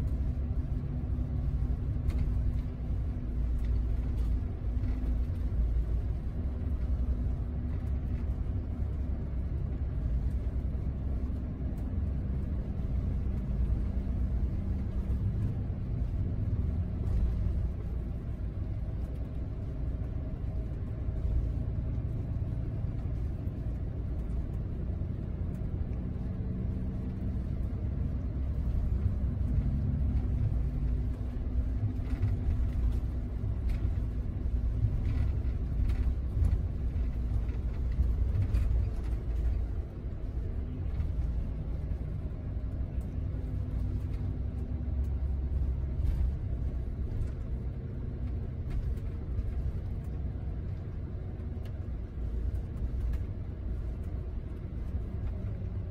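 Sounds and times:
coach engine and road rumble: 0.0s - 55.9s
light ticks: 0.0s - 55.9s.

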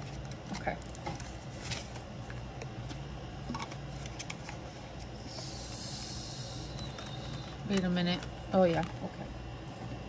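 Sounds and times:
paper and binder rustling: 0.0s - 2.1s
steady low hum: 0.0s - 10.0s.

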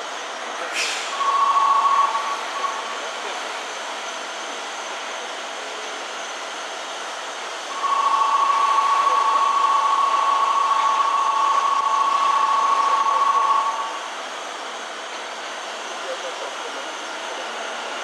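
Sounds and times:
electric train hissing: 0.0s - 18.0s.

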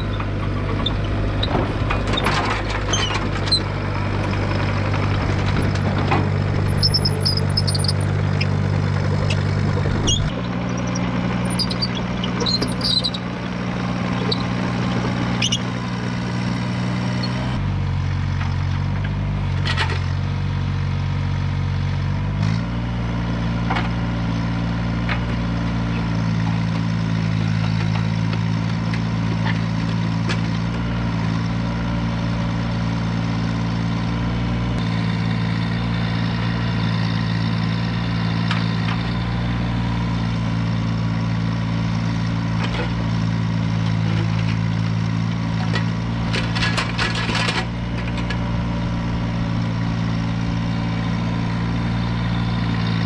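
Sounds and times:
mini excavator diesel engine: 0.0s - 53.0s
high squeaks and clicks: 6.5s - 8.6s, 9.2s - 17.4s.

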